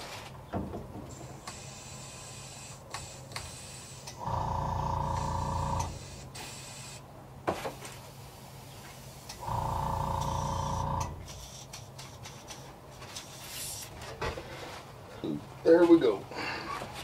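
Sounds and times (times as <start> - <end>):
air hissing through airbrush: 1.1 - 4.4, 5.2 - 7.1, 8.0 - 9.6, 10.3 - 13.9
airbrush compressor motor running: 4.2 - 6.2, 9.4 - 11.3.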